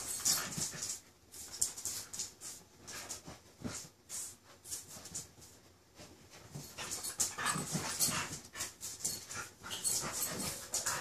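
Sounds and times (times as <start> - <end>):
dogs playing noises: 0.0 - 11.0
dogs scuffling: 0.0 - 11.0.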